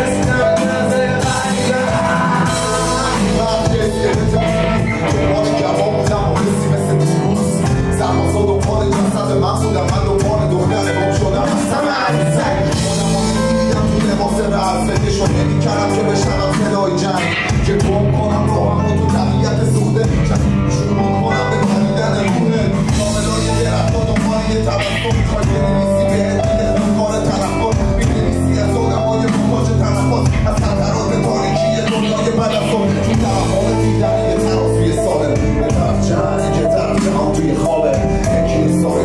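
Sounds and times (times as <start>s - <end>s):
steady drum beat: 0.0s - 20.9s, 21.6s - 39.0s
electric bass: 0.0s - 39.0s
electronic keyboard: 0.0s - 39.0s
man singing into a microphone: 0.0s - 39.0s.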